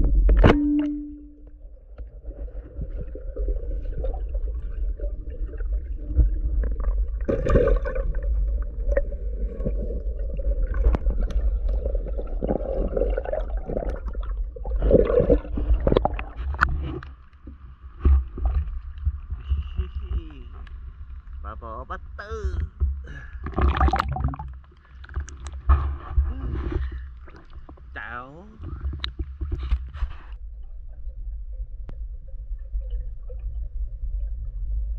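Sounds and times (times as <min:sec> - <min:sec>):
knocks and clicks: 0:00.0 - 0:01.4
muffled underwater rumble: 0:00.0 - 0:34.9.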